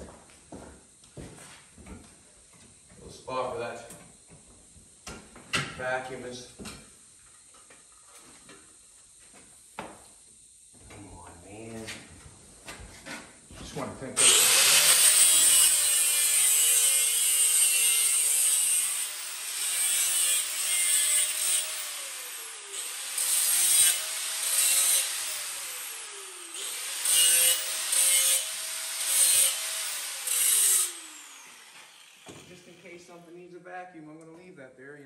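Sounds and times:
grinder disc rasping on metal: 0:14.2 - 0:32.7
angle grinder motor whine: 0:14.2 - 0:32.9.

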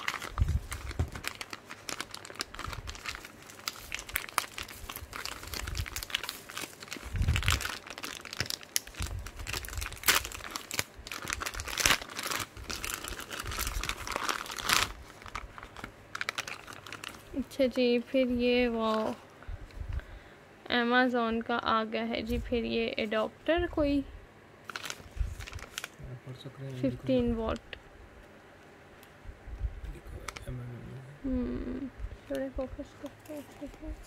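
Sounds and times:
plastic bag crinkling: 0:00.0 - 0:17.6, 0:24.6 - 0:26.0.

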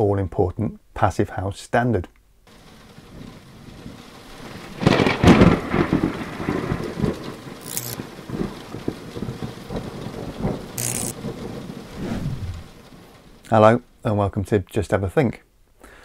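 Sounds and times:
steady rain: 0:02.5 - 0:14.1
thunder: 0:03.1 - 0:13.1.

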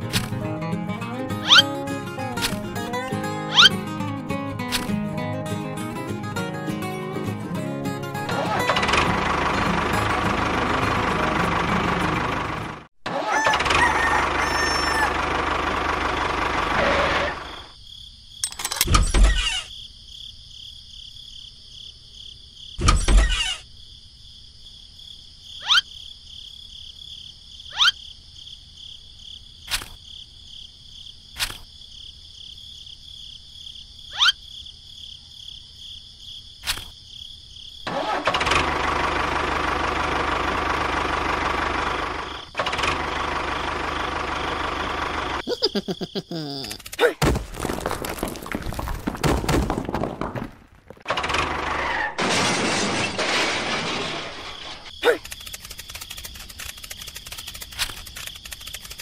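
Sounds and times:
toy motor whirring: 0:55.1 - 0:59.0.

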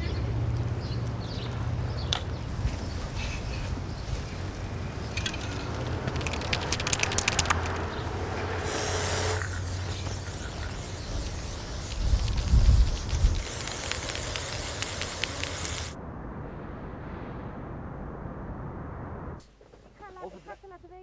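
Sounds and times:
spray can rattling: 0:05.1 - 0:07.9, 0:08.7 - 0:16.0
spray paint hissing: 0:08.6 - 0:16.0
low rumble: 0:15.9 - 0:19.4.

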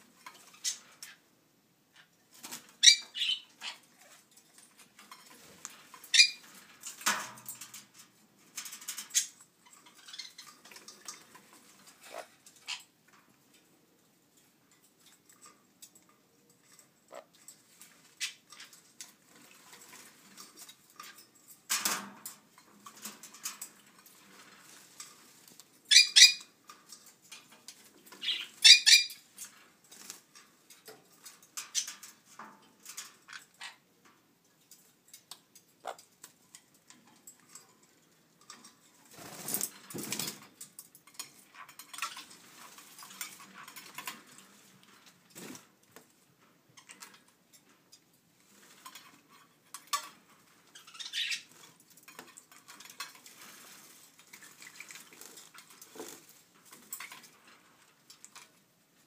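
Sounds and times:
shrill parrot calls: 0:28.2 - 0:29.2.

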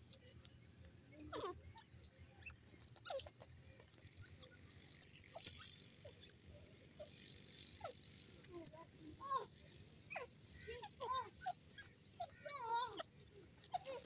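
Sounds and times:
small clicks: 0:01.8 - 0:05.6.

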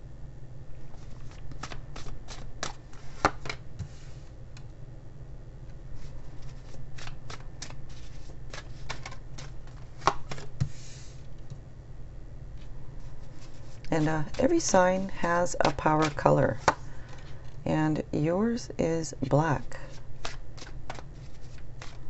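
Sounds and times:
cards shuffling and slapping: 0:00.9 - 0:04.3, 0:05.7 - 0:11.5, 0:12.6 - 0:17.6, 0:19.8 - 0:22.0.

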